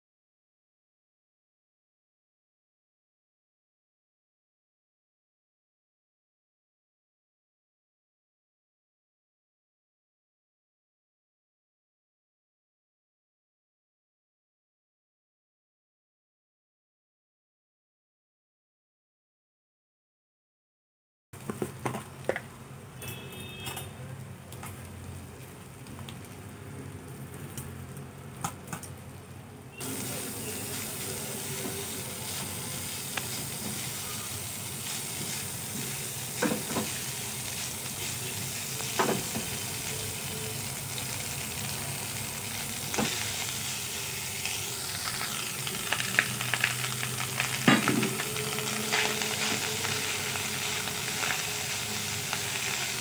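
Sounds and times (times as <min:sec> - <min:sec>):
rice frying in pan: 0:21.4 - 0:53.0.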